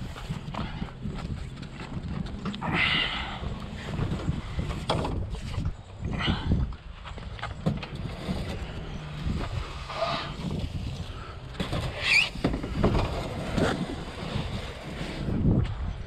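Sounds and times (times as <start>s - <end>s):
hull squeaking against rack: 11.6s - 13.7s.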